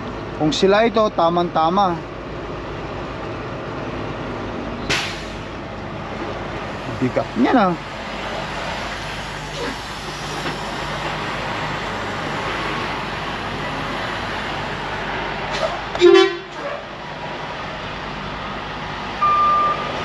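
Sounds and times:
truck horn toot: 15.9s - 16.6s.

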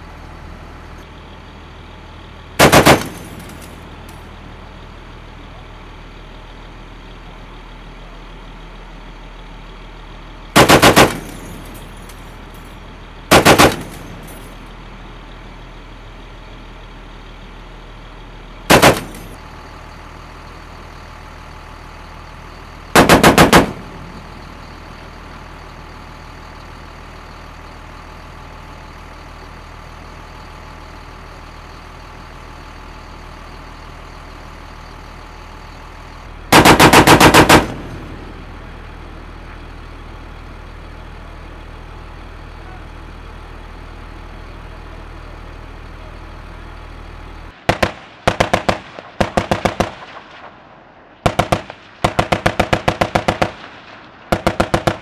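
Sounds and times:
vehicle engine idling: 0.0s - 55.0s
heavy machine gun bursts: 2.6s - 3.8s, 10.6s - 12.0s, 13.3s - 14.6s, 18.7s - 19.4s, 22.9s - 24.4s, 36.5s - 38.3s, 47.7s - 50.4s, 51.2s - 55.0s.

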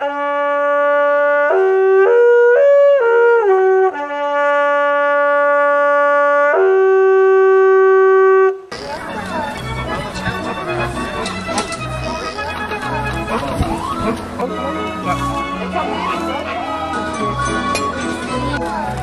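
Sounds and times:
long wooden horn notes: 0.0s - 19.0s.

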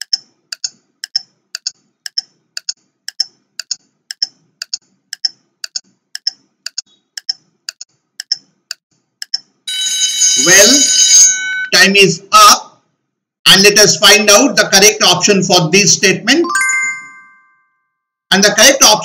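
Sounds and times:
clock ticking: 0.0s - 9.6s.

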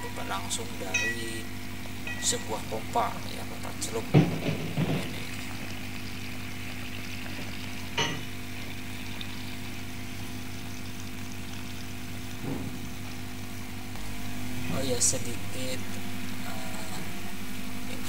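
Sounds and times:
water gushing from pipe: 3.6s - 13.2s
short knock: 12.4s - 12.9s.

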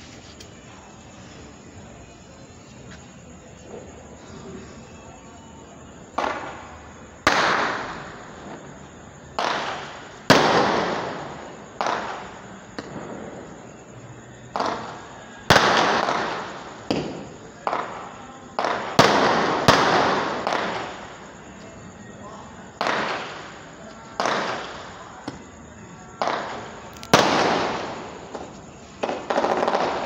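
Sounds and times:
fireworks bangs with echo: 6.0s - 21.6s, 22.6s - 30.0s.

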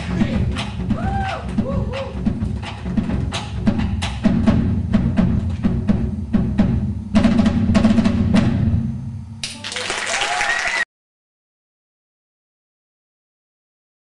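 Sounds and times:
live band music: 0.0s - 8.7s
drum hits: 0.0s - 9.3s
low bass: 0.0s - 9.5s
audience applause and cheering: 9.4s - 10.9s.

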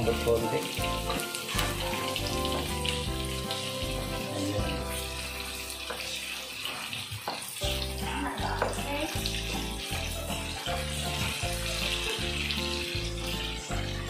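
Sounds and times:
background music with held notes: 0.0s - 14.0s
vegetables sizzling in a wok: 0.0s - 14.0s.

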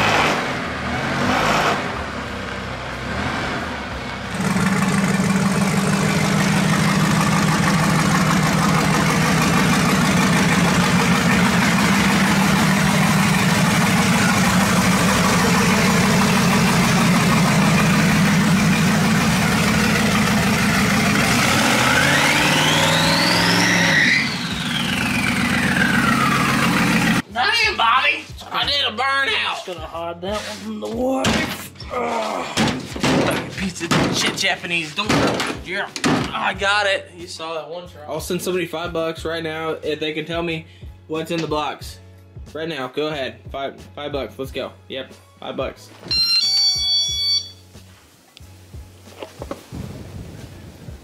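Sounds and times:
engine revving: 0.0s - 27.2s
car engine idling: 3.7s - 27.2s
turbo whistle: 46.1s - 47.7s.

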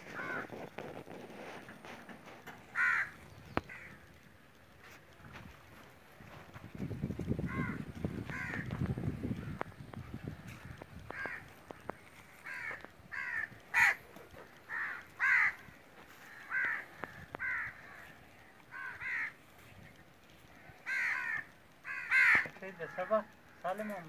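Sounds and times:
crows cawing: 0.0s - 0.8s, 2.6s - 4.3s, 7.4s - 19.6s, 20.3s - 24.0s.

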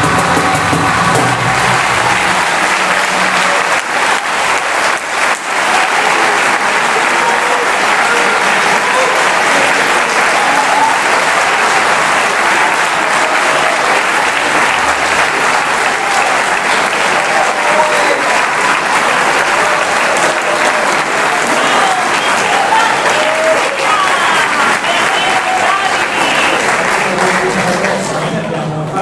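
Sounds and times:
audience applauding: 0.0s - 28.6s.

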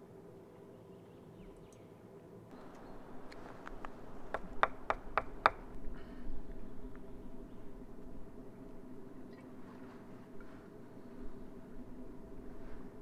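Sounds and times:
steady low background: 0.0s - 13.0s
soft rustle: 9.4s - 13.0s.

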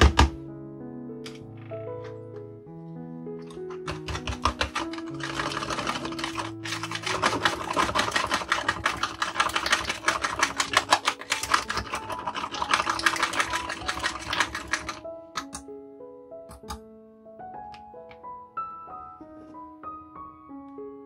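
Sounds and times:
soft background music: 0.0s - 21.0s
whisk clicking against plastic: 3.5s - 15.6s.

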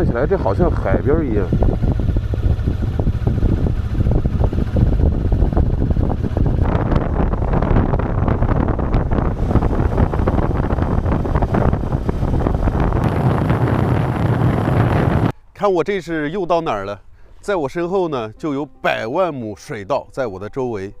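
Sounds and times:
road noise: 0.0s - 15.3s
wind buffeting microphone: 0.0s - 15.3s
motorcycle engine running: 0.1s - 15.3s.

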